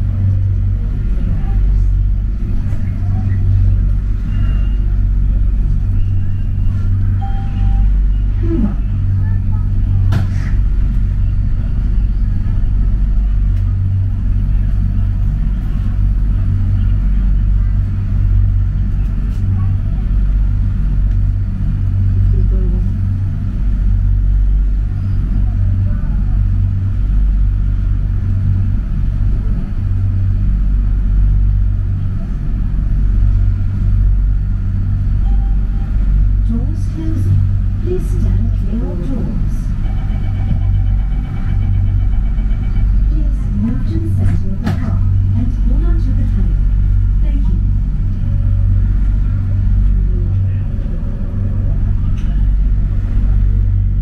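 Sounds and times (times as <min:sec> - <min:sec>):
rail car rumble: 0:00.0 - 0:54.0.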